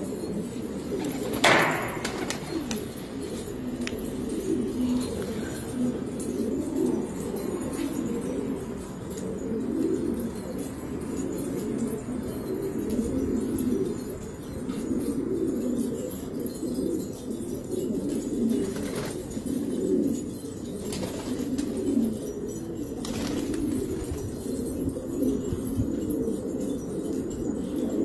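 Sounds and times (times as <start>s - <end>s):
pigeons cooing: 0.0s - 28.0s.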